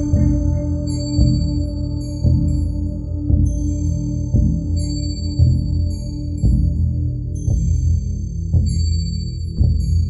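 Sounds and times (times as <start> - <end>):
slow deep beat: 0.0 - 8.9.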